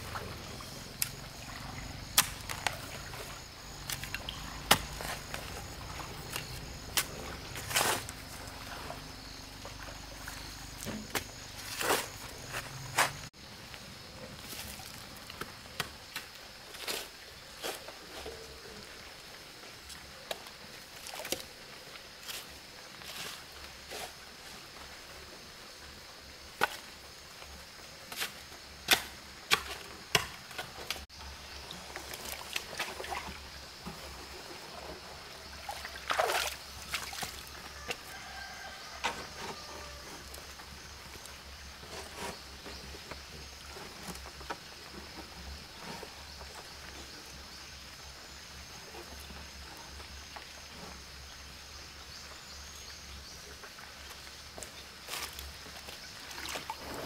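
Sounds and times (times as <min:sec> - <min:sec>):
shovel striking stony soil: 0:02.1 - 0:02.8, 0:03.9 - 0:05.4
cement sheet scraping rustle: 0:56.7 - 0:57.0.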